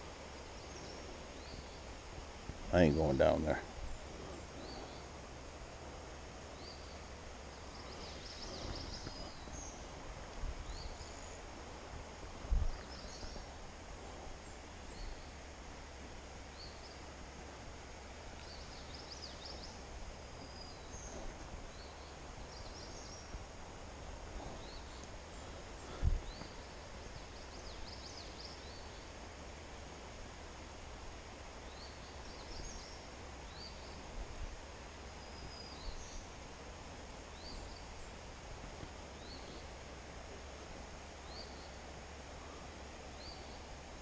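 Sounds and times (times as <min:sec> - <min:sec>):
birds chirping and singing: 0:06.6 - 0:09.9.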